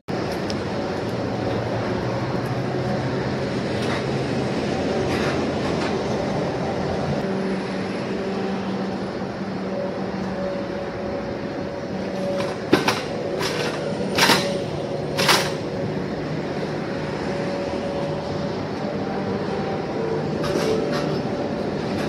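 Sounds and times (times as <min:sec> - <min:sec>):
steady mechanical drone: 0:00.1 - 0:22.0
metallic clanks of hand truck: 0:12.1 - 0:15.8, 0:20.4 - 0:22.0.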